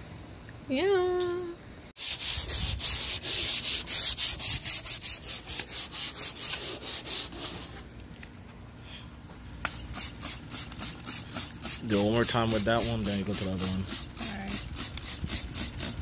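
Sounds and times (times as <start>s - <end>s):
sandpaper rubbing on plastic: 2.0s - 7.8s, 9.7s - 16.0s.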